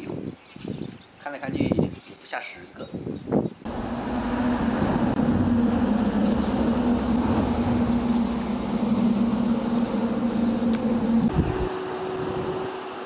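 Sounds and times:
engine running steadily: 3.7s - 13.0s.

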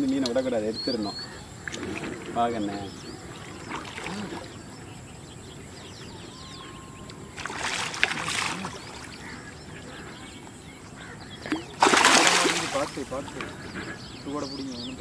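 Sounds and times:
fish splashing in water: 7.2s - 9.6s, 11.4s - 13.7s.

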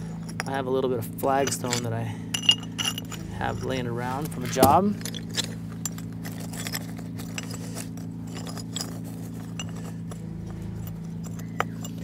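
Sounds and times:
low steady hum: 0.0s - 12.0s
stones clicking and knocking: 1.2s - 10.2s, 10.8s - 12.0s.

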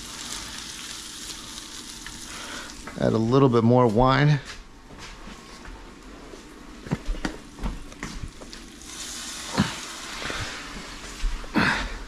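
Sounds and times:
meat sizzling in a hot pan: 0.0s - 3.0s, 8.3s - 11.3s.

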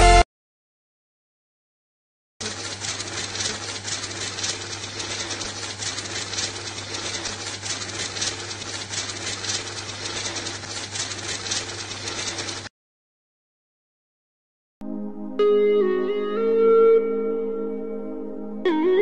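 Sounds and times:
banknotes riffling: 2.4s - 12.7s
counting machine motor humming: 2.4s - 12.7s.

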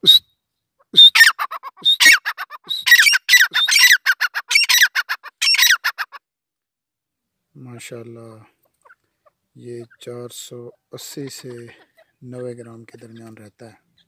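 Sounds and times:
short high whistles: 0.0s - 0.4s, 1.0s - 4.0s
bird calling shrill notes: 0.0s - 6.0s.

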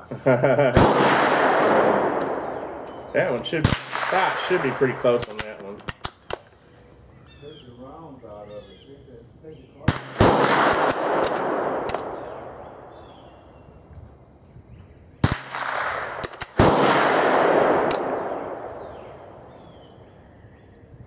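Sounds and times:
rifle shots with echo: 0.7s - 6.4s, 9.8s - 13.3s, 15.2s - 19.7s.

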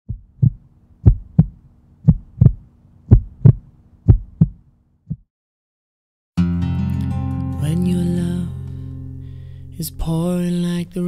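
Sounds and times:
heartbeat thumps: 0.1s - 5.3s
acoustic guitar music: 6.4s - 11.0s.

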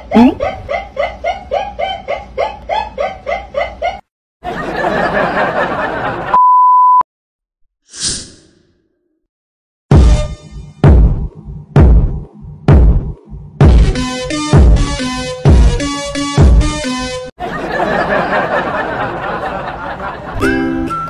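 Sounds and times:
loud steady beep: 6.3s - 7.0s.

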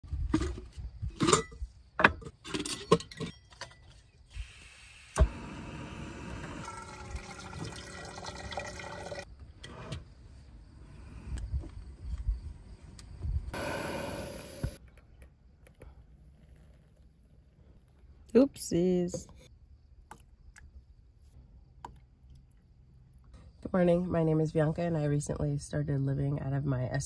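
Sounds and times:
stove gas hissing: 4.3s - 7.5s, 13.4s - 14.8s.

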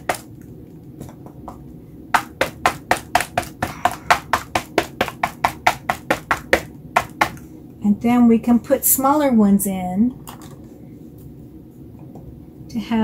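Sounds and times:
stamp tapping on board: 2.2s - 7.4s.

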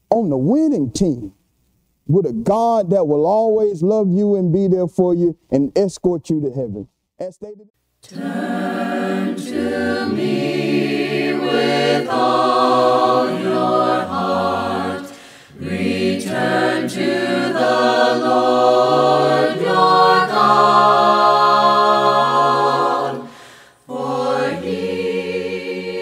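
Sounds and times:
choir singing a cappella: 8.0s - 26.0s.

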